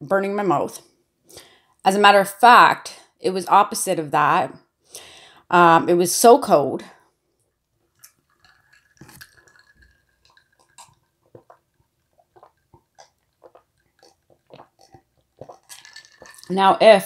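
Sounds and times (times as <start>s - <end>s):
wet mouth clicks: 8.0s - 16.6s
person swallowing: 8.6s - 16.5s.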